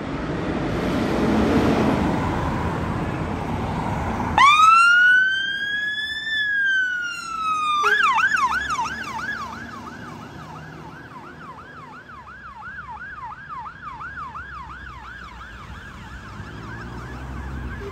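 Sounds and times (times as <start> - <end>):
low engine and traffic rumble: 0.0 - 17.9
two-tone siren yelping: 4.4 - 17.9.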